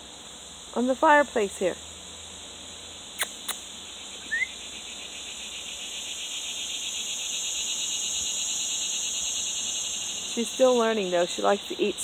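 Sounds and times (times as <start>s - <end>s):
cicadas buzzing: 0.0s - 12.0s
sharp clicks: 3.2s - 3.6s.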